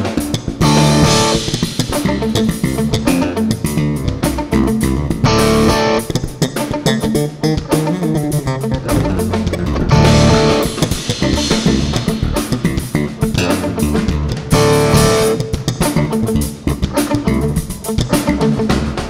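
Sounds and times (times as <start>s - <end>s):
jazz band playing: 8.2s - 13.9s
electric bass line: 8.4s - 15.2s.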